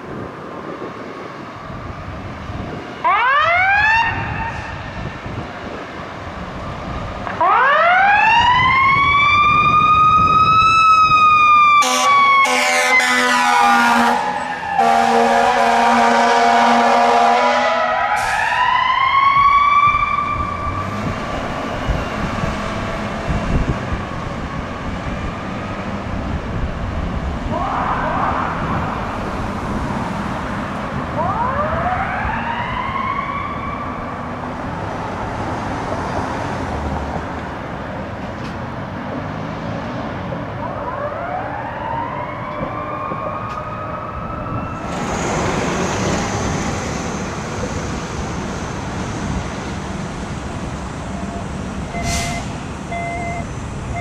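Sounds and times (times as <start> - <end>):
air horn blasts: 11.8 - 18.4, 51.9 - 52.5.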